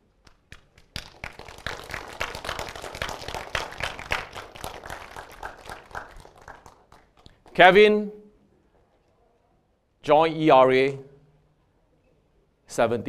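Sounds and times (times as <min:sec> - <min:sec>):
crowd applause: 0:00.8 - 0:07.5.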